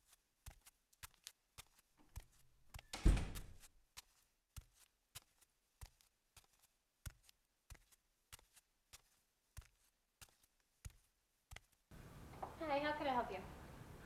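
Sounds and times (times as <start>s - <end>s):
door thudding shut: 2.9s - 3.6s.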